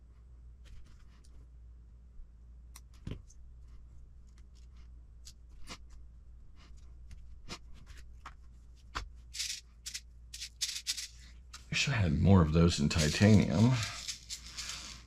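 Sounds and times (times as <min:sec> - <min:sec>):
small plastic parts clicking: 0:09.4 - 0:11.2.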